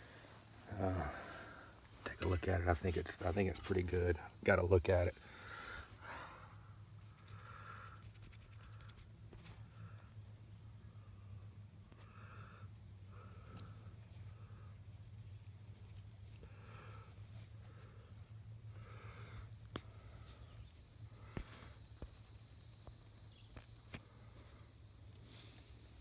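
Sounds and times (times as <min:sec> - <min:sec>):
insect drone: 0:00.0 - 0:26.0
fingers scraping dry dirt: 0:07.0 - 0:09.6.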